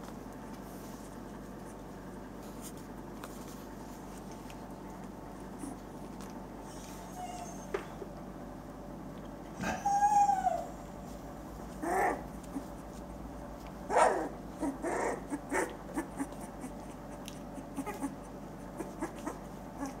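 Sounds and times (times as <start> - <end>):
faint clicks and shuffling: 0.0 - 8.3, 10.8 - 14.5
puppies whimpering and squeaking: 6.6 - 8.0, 9.6 - 11.0, 11.7 - 13.0, 13.9 - 20.0.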